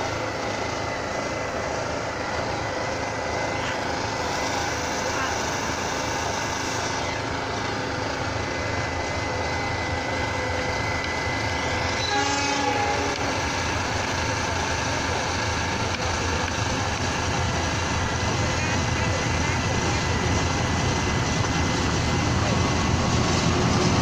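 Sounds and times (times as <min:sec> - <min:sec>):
locomotive engine rumbling: 0:00.0 - 0:24.0
train horn blast: 0:11.8 - 0:13.6.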